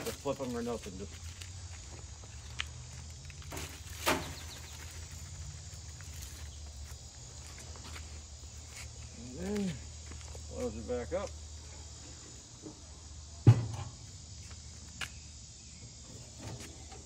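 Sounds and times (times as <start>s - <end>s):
insect drone: 0.0s - 17.0s
sharp knock on grill: 13.4s - 13.9s.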